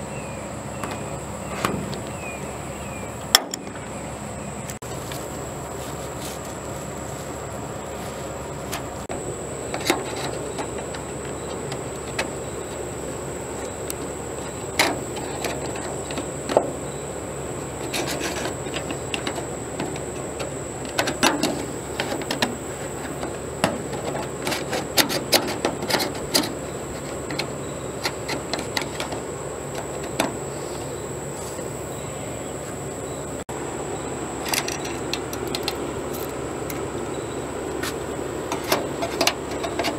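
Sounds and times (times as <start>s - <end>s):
steady background hiss: 0.0s - 39.9s
hands rubbing sheet metal: 17.8s - 31.6s
metal parts clicking and tapping: 17.9s - 30.4s, 34.4s - 36.8s, 37.8s - 39.9s.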